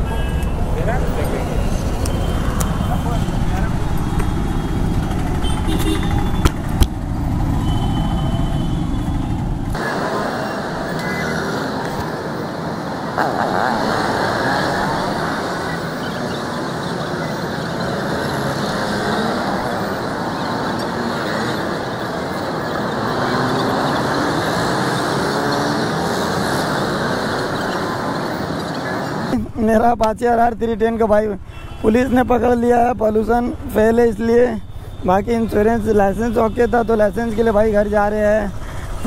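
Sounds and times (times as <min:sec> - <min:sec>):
road traffic noise: 0:00.0 - 0:39.0.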